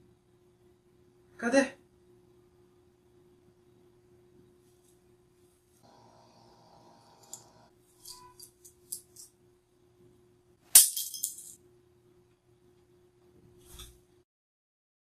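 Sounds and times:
plastic picks clattering on tile: 10.8 - 11.6.

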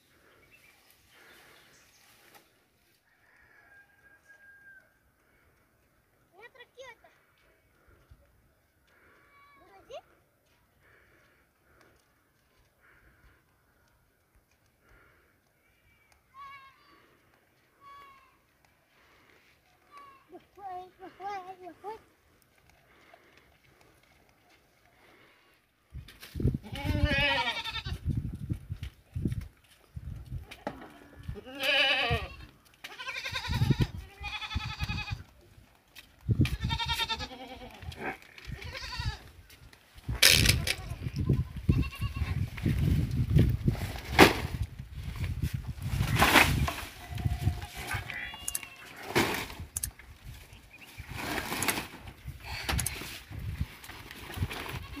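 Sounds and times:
goat bleating: 26.6 - 28.0, 31.2 - 35.3, 36.4 - 39.3, 40.5 - 42.4, 47.0 - 49.2
rustling of leafy fodder: 42.0 - 55.0.

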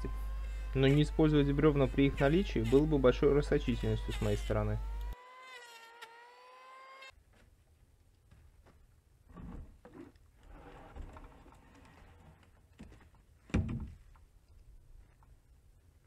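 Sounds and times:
low steady rumble: 0.0 - 5.2
rustling and light knocks: 10.7 - 15.3.

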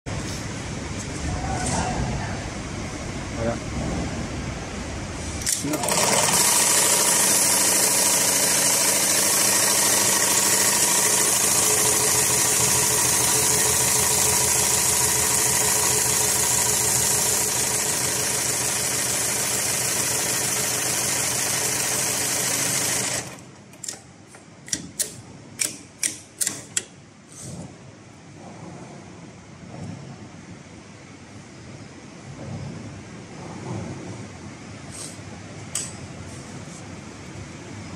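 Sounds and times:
sewing machine stitching rapidly: 5.4 - 24.0
sharp machine clicks: 5.4 - 24.0, 24.7 - 26.9.

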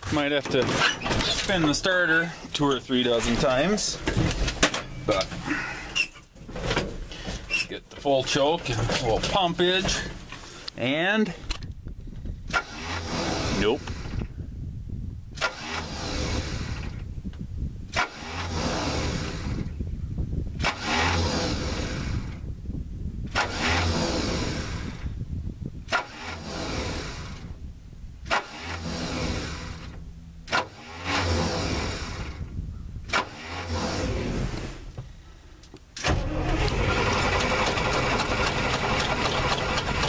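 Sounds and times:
engine starter cranking: 12.5 - 14.3, 15.4 - 17.0, 17.9 - 19.7, 20.6 - 22.4, 23.3 - 25.1, 25.9 - 27.5, 28.2 - 32.5, 33.1 - 34.5, 36.0 - 40.0.

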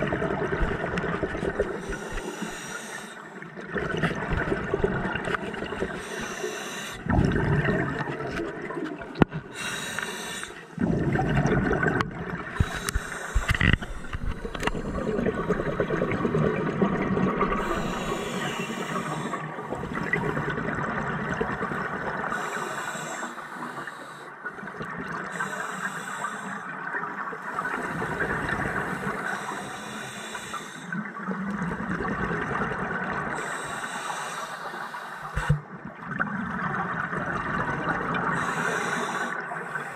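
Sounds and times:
exhaled bubbles rushing: 0.0 - 2.2, 3.5 - 6.0, 7.0 - 9.6, 10.8 - 22.3, 31.2 - 33.4, 35.4 - 38.4
regulator hissing inhalations: 1.8 - 3.3, 6.0 - 7.0, 9.5 - 10.8, 12.6 - 14.6, 17.6 - 19.5, 22.3 - 24.4, 25.3 - 26.7, 28.9 - 31.0, 33.4 - 35.6, 38.4 - 39.9.

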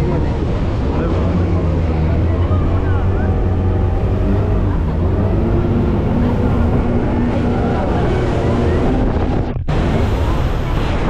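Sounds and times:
faint voices: 0.0 - 11.0
motorboat engine rumbling: 0.0 - 11.0
water and wind rushing: 0.0 - 11.0.

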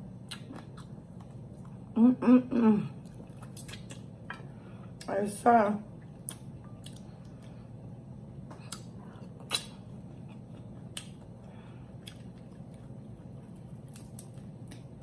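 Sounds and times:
person chewing food: 0.0 - 2.0, 3.0 - 5.1, 6.0 - 15.0
steady low hum: 0.0 - 15.0
wet mouth clicks: 8.6 - 9.8.

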